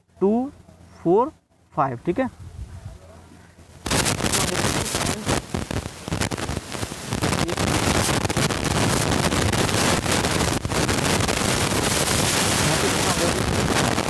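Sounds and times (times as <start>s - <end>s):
rushing hiss on microphone: 3.8s - 14.0s.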